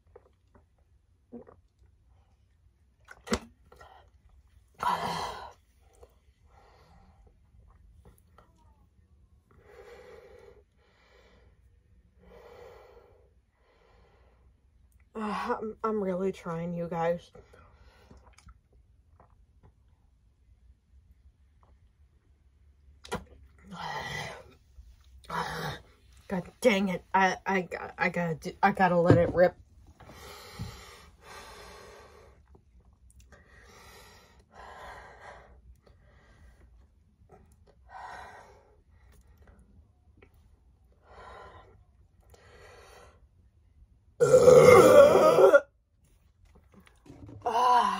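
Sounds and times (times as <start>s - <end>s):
woman breathing heavily: 9.5s - 14.6s, 30.0s - 32.6s, 33.3s - 36.8s, 37.8s - 39.6s, 40.9s - 43.4s.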